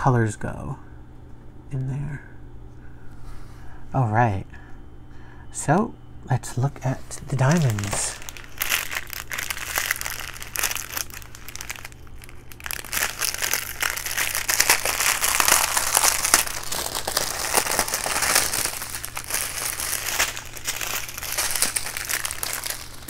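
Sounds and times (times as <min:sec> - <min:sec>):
plastic bags crinkling: 0:06.9 - 0:23.0.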